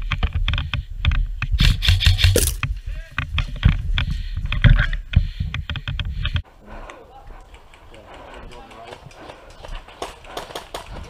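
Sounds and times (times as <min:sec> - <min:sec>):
low rumble of wind: 0:00.0 - 0:11.0
footsteps: 0:02.3 - 0:06.5.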